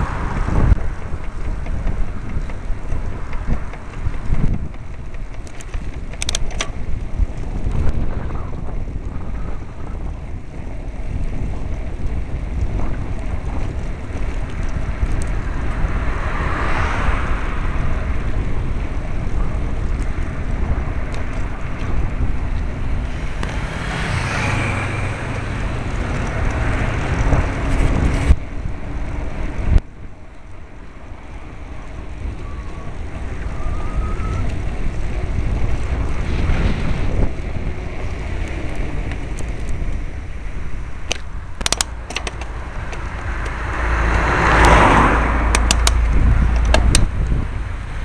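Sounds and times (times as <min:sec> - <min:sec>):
road traffic noise: 0:00.0 - 0:48.0
wind rushing over microphone: 0:00.0 - 0:48.0
sharp clicks: 0:01.2 - 0:06.8, 0:41.0 - 0:44.8, 0:45.5 - 0:47.3.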